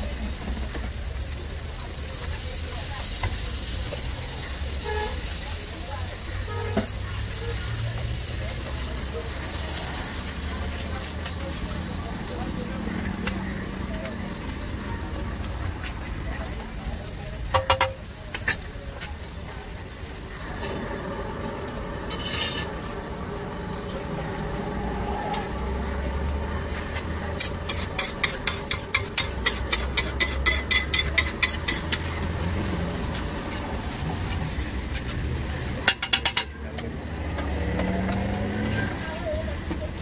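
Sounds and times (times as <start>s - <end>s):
egg sizzling: 12.6s - 39.1s
metal spatula scraping griddle: 21.7s - 23.2s, 26.8s - 32.4s.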